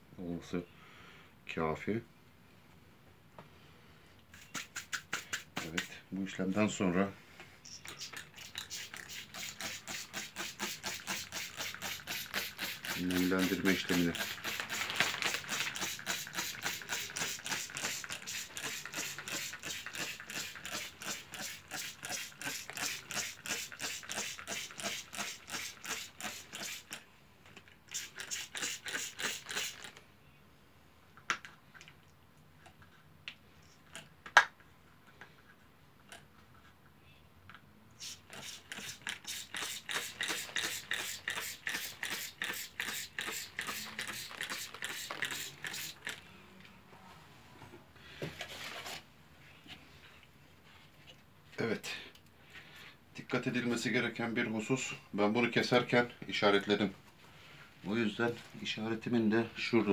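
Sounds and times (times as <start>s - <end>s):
spray bottle hissing squirts: 4.3s - 6.0s, 7.7s - 27.0s, 27.9s - 30.0s, 38.0s - 46.2s.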